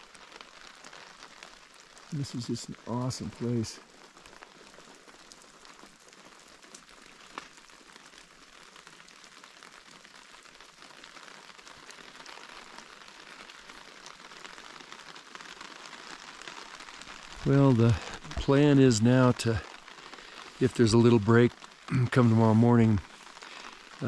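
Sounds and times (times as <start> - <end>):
light rain falling: 0.0 - 24.0
raindrop taps: 15.5 - 24.0.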